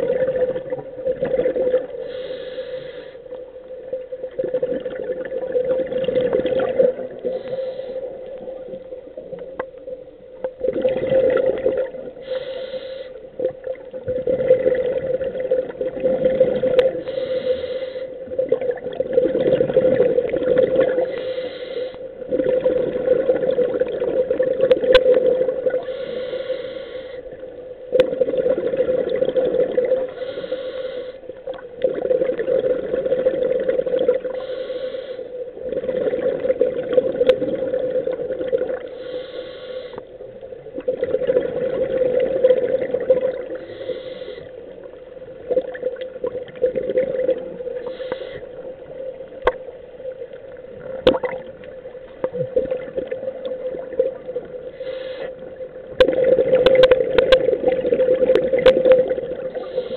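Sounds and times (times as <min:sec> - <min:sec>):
bubbling exhaust underwater: 0:00.0 - 0:59.9
regulator inhale hiss: 0:01.9 - 0:03.4, 0:07.2 - 0:08.5, 0:12.2 - 0:13.4, 0:16.8 - 0:18.3, 0:21.0 - 0:22.2, 0:25.8 - 0:27.5, 0:30.0 - 0:31.4, 0:34.2 - 0:35.6, 0:38.8 - 0:40.2, 0:43.5 - 0:44.8, 0:47.6 - 0:48.9, 0:54.5 - 0:55.7, 0:59.4 - 0:59.9.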